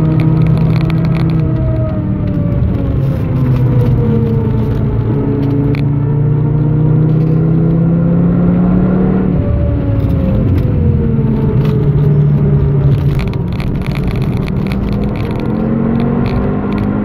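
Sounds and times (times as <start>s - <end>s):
car engine decelerating: 0.0s - 17.0s.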